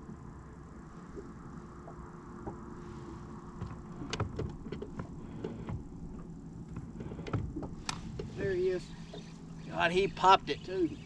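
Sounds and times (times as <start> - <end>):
boat low rumble: 0.0 - 11.0
light clicks and knocks: 3.6 - 8.4.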